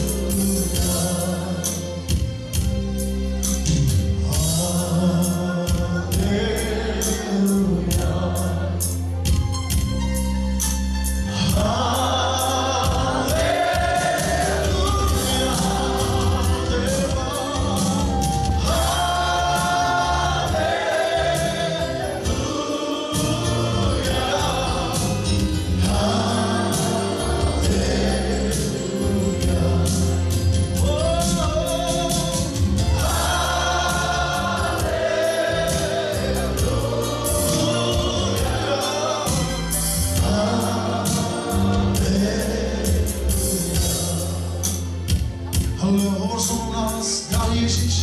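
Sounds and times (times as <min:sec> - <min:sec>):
band with steady beat: 0:00.0 - 0:48.0
choir singing: 0:04.3 - 0:09.0, 0:11.4 - 0:45.0.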